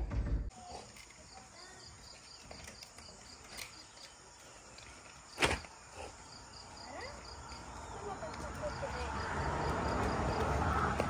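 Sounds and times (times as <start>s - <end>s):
insects chirping: 0.5s - 11.0s.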